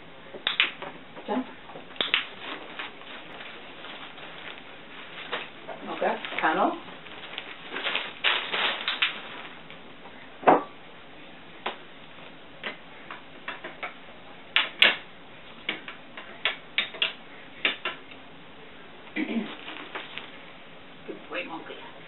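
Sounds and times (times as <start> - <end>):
fabric tunnel rustling: 2.2 - 10.0, 19.3 - 20.6.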